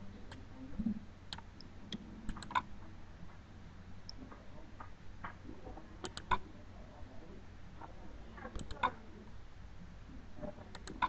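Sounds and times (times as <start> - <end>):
low steady hum: 0.0 - 11.0
computer mouse clicks: 1.3 - 2.7, 6.0 - 6.4, 8.5 - 9.0, 10.7 - 11.0.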